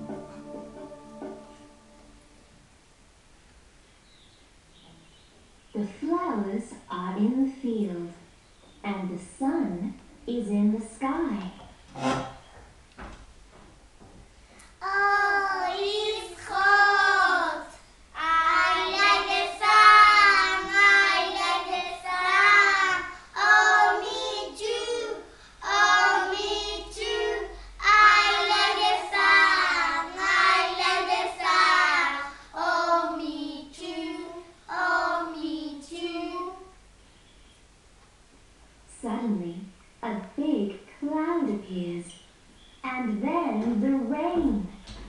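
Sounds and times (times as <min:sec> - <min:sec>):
young children singing: 0:00.0 - 0:02.7, 0:14.8 - 0:36.8.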